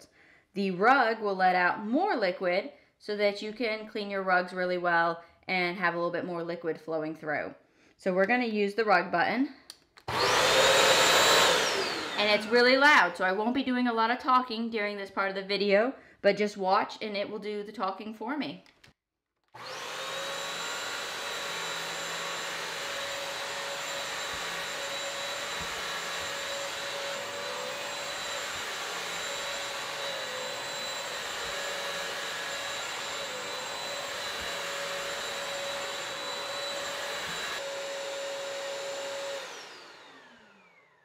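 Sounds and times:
vacuum mop motor whining: 10.1 - 13.1, 19.5 - 41.0.

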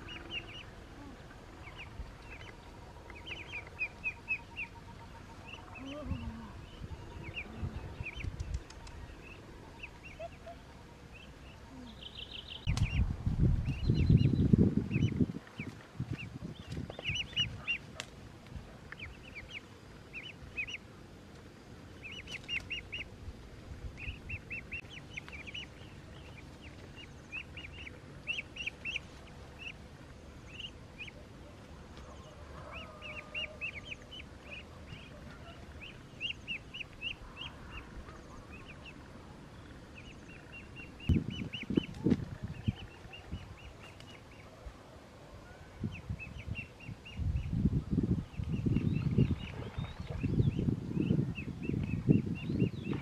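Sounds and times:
low rumbling noise: 0.0 - 17.6
ducklings peeping: 0.0 - 23.2, 23.8 - 44.8, 45.4 - 53.0.

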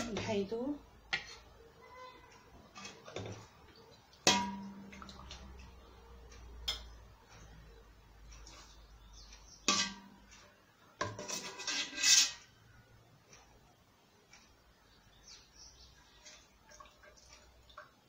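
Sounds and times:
metal utensil clanking on pot: 4.2 - 5.3, 9.6 - 10.4, 11.0 - 12.5.

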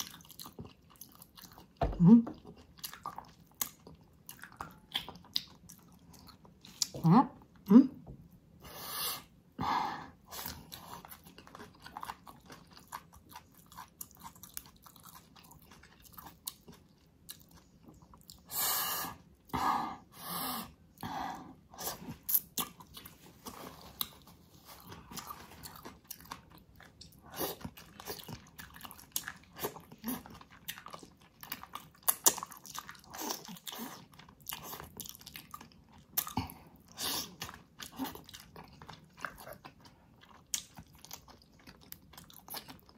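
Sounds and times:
person chewing food: 0.0 - 9.5, 10.1 - 42.9
food crunching: 22.1 - 42.9.

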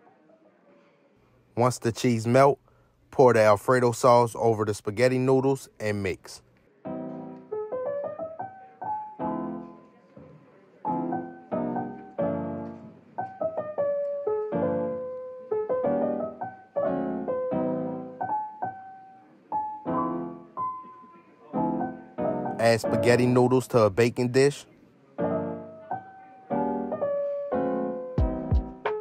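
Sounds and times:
piano music: 6.8 - 10.0, 10.8 - 24.6, 25.2 - 29.0.

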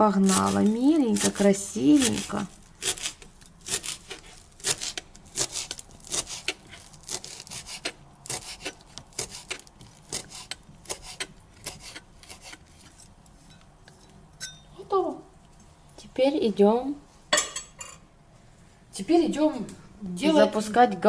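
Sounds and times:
knife chopping on plastic board: 2.0 - 12.6.

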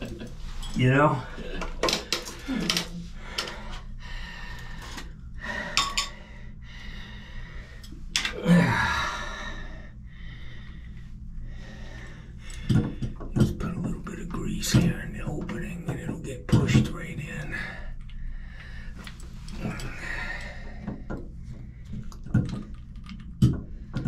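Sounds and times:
metal tools clinking and scraping: 0.0 - 3.6, 5.6 - 6.2, 19.0 - 20.4
breathy vocal sound: 2.3 - 12.9.

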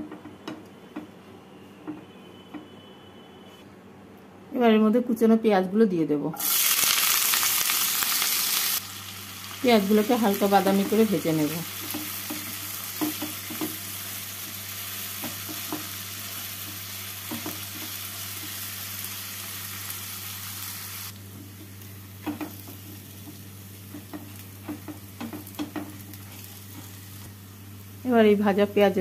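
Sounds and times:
onions sizzling in oil: 6.4 - 29.0
spatula scraping and tapping pan: 11.8 - 13.8, 22.2 - 27.0.

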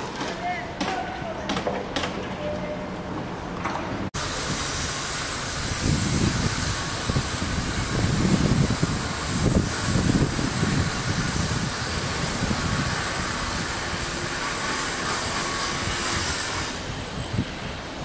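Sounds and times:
wind buffeting microphone: 4.0 - 18.0.

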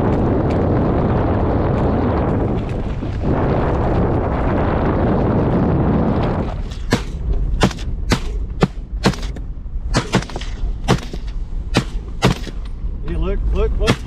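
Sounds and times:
rapid rifle fire: 10.0 - 12.6.

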